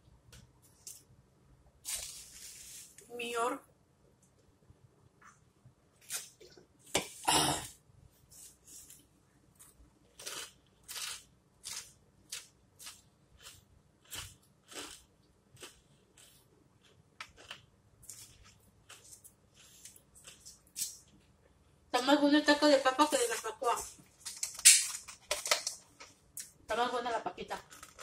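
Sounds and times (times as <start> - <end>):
chewing crunchy food: 9.5 - 21.3.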